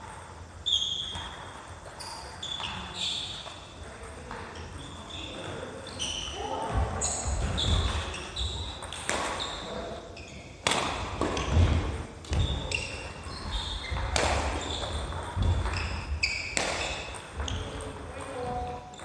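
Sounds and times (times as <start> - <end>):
sneakers squeaking: 0.0 - 19.0
racket hitting shuttlecock: 6.7 - 9.6, 10.6 - 17.6.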